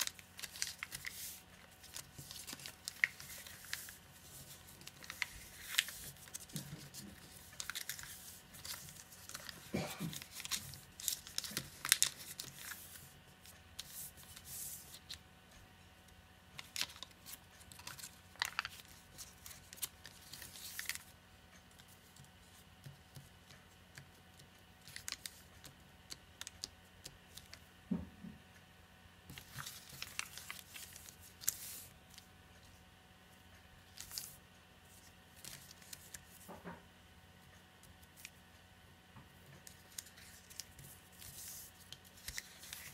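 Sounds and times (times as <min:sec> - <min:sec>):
paper rustling and crinkling: 0:00.0 - 0:15.2, 0:16.6 - 0:21.1, 0:29.3 - 0:32.3, 0:33.9 - 0:36.8, 0:39.6 - 0:42.9.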